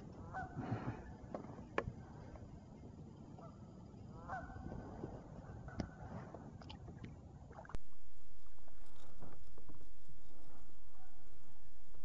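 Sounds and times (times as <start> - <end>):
steady hiss with faint ticks: 7.7 - 12.0.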